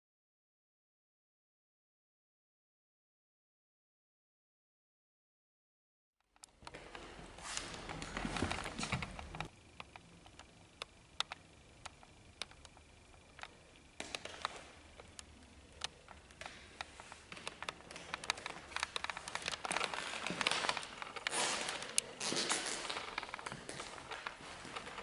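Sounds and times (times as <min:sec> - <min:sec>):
footsteps on hard floor: 0:06.7 - 0:09.4
rustling and shuffling: 0:06.7 - 0:09.5, 0:16.4 - 0:25.0.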